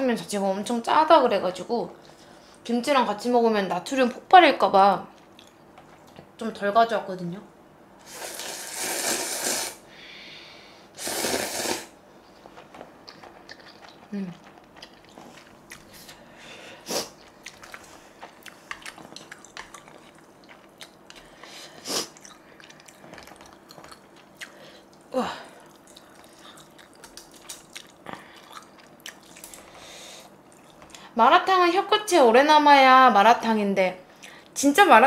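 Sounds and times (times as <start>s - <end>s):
loud mouth sounds: 8.0s - 9.8s, 11.0s - 12.0s
person chewing noodles: 11.0s - 31.0s.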